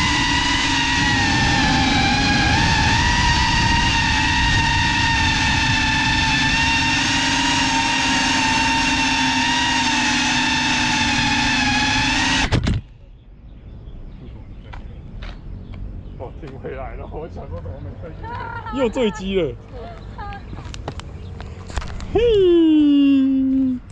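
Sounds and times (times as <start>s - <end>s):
drone motors whining: 0.0s - 13.0s.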